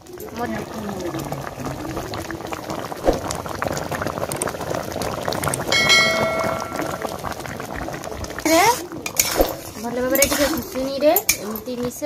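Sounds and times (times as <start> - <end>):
thick chutney bubbling and popping: 0.0 - 12.0
ringing chime: 5.8 - 7.2.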